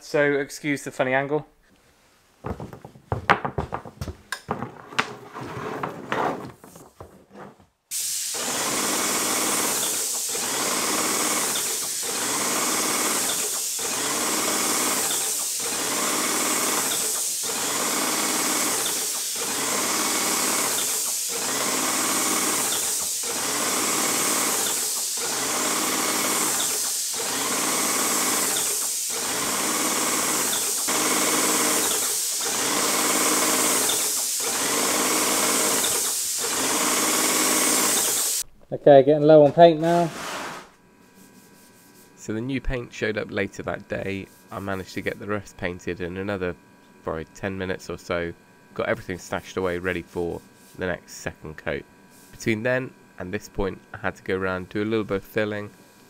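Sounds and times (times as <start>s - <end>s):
knocks: 2.4s - 5.2s
paint sprayer hissing: 7.9s - 38.5s, 39.8s - 42.2s, 52.1s - 52.4s.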